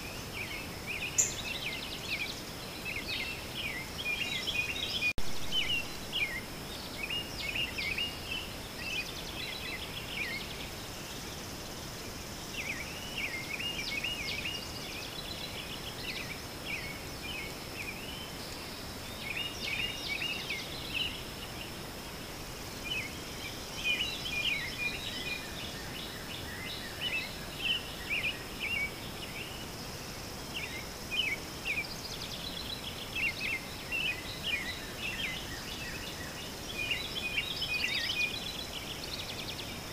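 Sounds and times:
small birds chirping: 0:00.0 - 0:39.9
soft hiss: 0:00.0 - 0:39.9.

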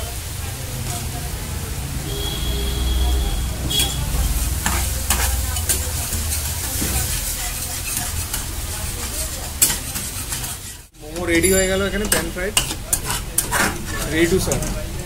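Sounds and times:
sauce sizzling in a frying pan: 0:00.0 - 0:11.0
spatula scraping a pan: 0:03.6 - 0:14.9.

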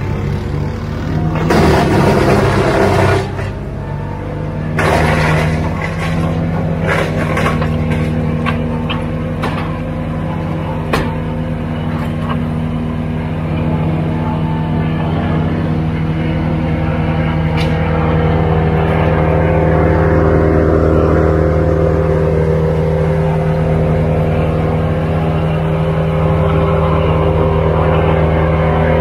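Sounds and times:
skid steer engine running: 0:00.0 - 0:29.0
metal clanks from loader: 0:04.7 - 0:10.0.

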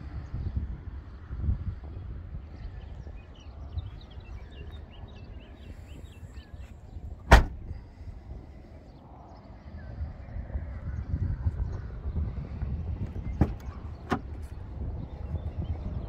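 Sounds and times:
car tailgate slamming shut: 0:07.2 - 0:07.7, 0:13.4 - 0:14.4.

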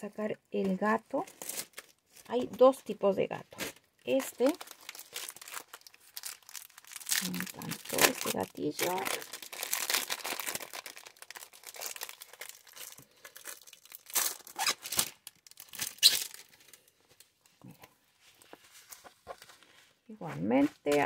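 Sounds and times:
plastic packaging crinkling: 0:01.3 - 0:02.4, 0:03.5 - 0:17.6.

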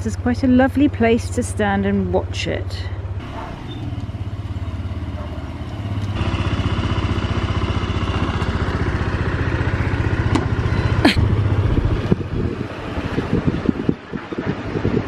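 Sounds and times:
scooter engine idling: 0:03.0 - 0:13.5.

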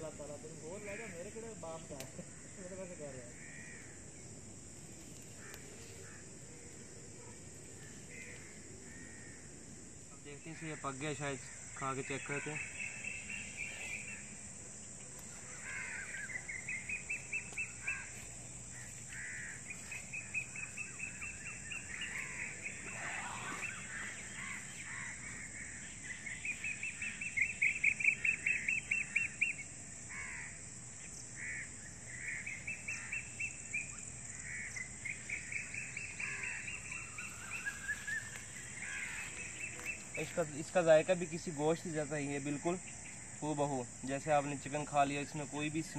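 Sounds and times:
high-pitched insect hum: 0:00.0 - 0:45.9
birds calling in rapid notes: 0:10.4 - 0:14.5, 0:15.2 - 0:30.5, 0:31.1 - 0:43.3.

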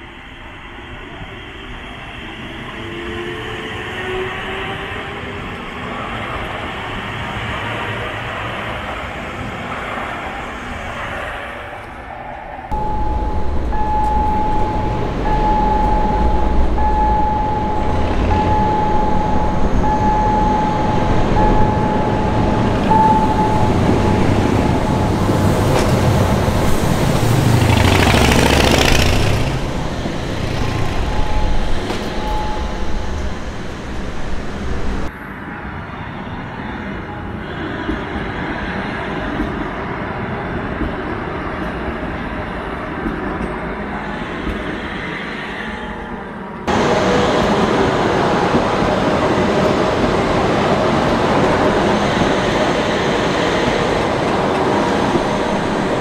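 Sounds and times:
electric train passing: 0:00.0 - 0:56.0
warning tone beeping: 0:12.7 - 0:26.3, 0:30.0 - 0:34.4.

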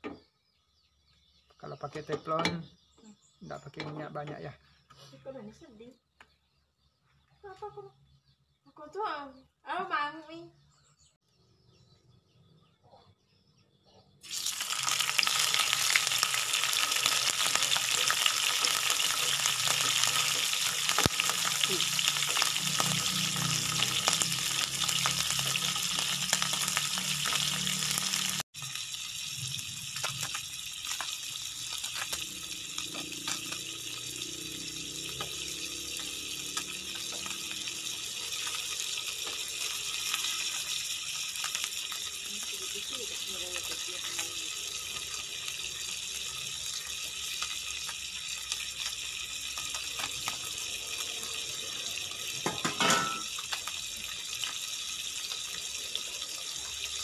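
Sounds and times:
fish sizzling in oil: 0:14.2 - 0:57.0.

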